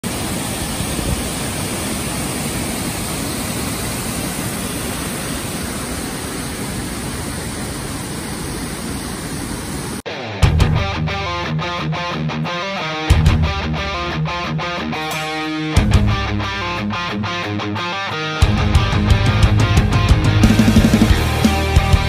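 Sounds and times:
waterfall rushing: 0.0s - 10.2s, 20.2s - 22.0s.

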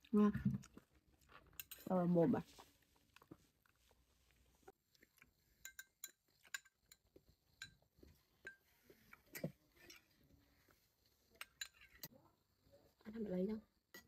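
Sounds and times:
spoons clinking on ceramic bowls: 5.6s - 8.7s, 11.3s - 12.1s.

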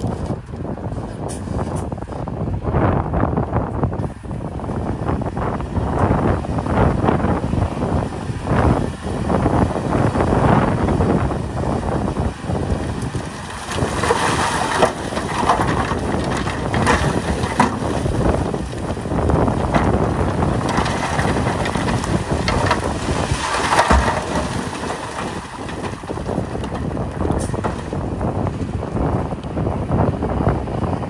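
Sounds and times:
bulldozer rumble: 0.0s - 31.0s
stone crunching and grinding: 12.9s - 28.1s.

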